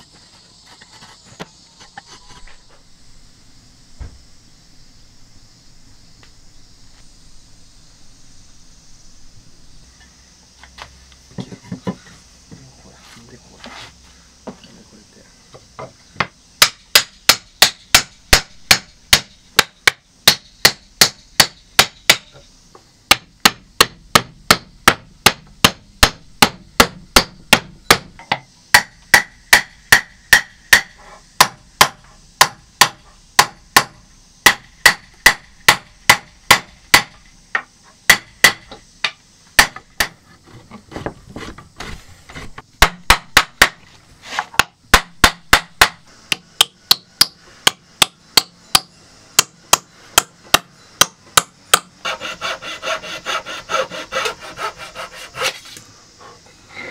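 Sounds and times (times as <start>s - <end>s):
hammer striking wood: 15.8s - 22.4s, 23.1s - 40.2s, 41.8s - 43.8s, 44.4s - 54.7s.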